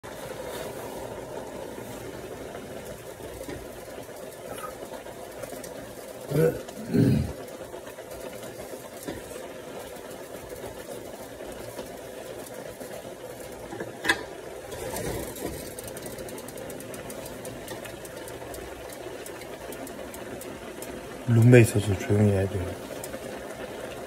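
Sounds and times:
steady mechanical hum: 0.0 - 24.0.

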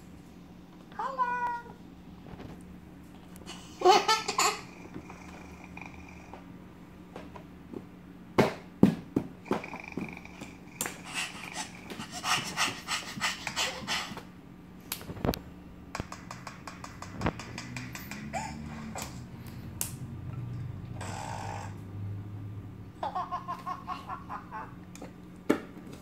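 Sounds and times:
baby laughing: 3.5 - 4.7, 11.0 - 14.2, 18.1 - 19.3, 23.0 - 24.8.

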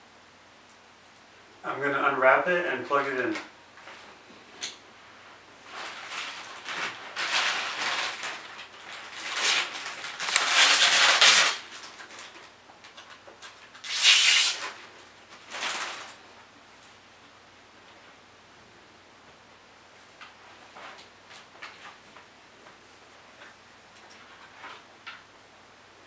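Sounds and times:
plastic wrapping crinkling: 5.6 - 16.3.

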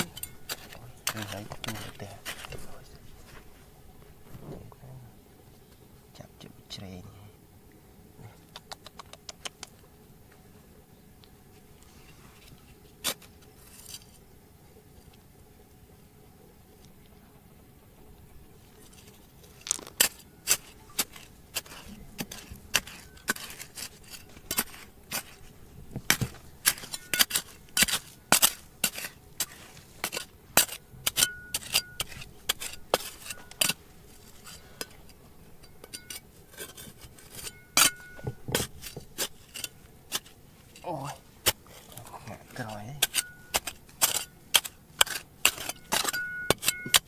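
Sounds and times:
metal tool striking rocks: 0.0 - 2.8, 19.6 - 40.4, 41.4 - 41.6, 42.6 - 47.0.

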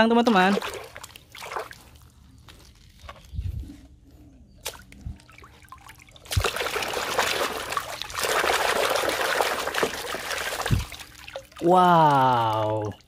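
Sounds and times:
water splashing in metal basin: 0.1 - 2.1, 4.6 - 13.0
water dripping: 4.6 - 13.0.

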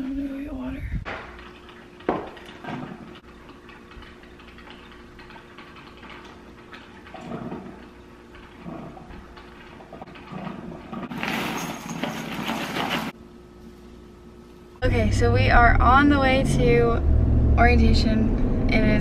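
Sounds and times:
handling sounds: 11.1 - 13.9.

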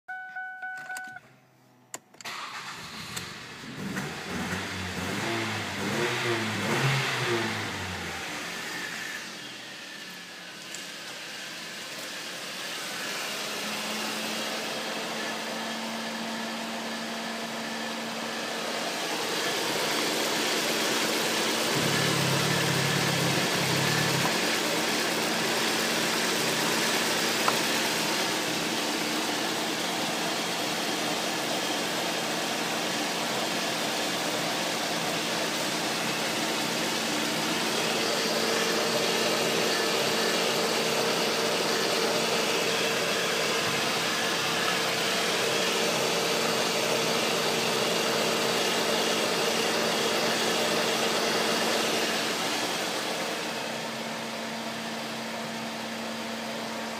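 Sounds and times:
car engine idling: 13.6 - 56.9.

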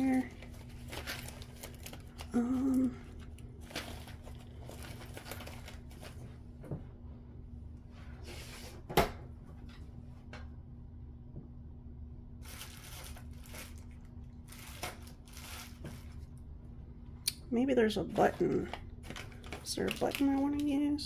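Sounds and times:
faint steady hum: 0.0 - 21.0
paper rustling on tabletop: 12.4 - 16.3.

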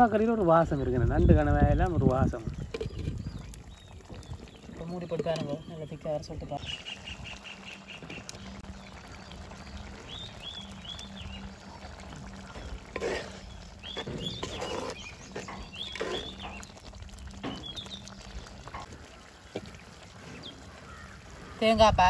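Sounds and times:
curry simmering in a pot: 0.0 - 22.0
wooden spoon stirring: 2.4 - 3.5, 12.0 - 19.8.

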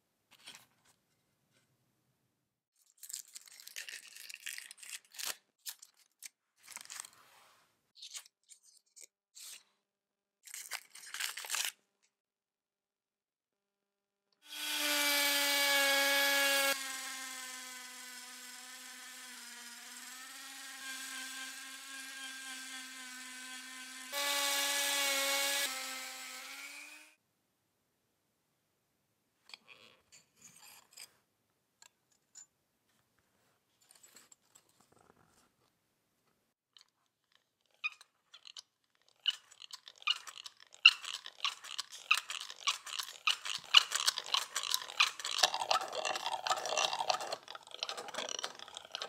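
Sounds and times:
scraping and rubbing strokes: 6.8 - 9.7
small power tool whining: 14.4 - 27.2.

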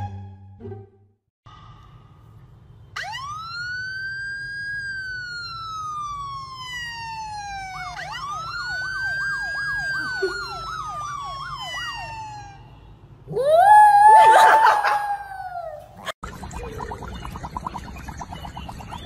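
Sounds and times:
siren wailing: 3.0 - 16.7
siren warbling yelp: 3.0 - 17.3.

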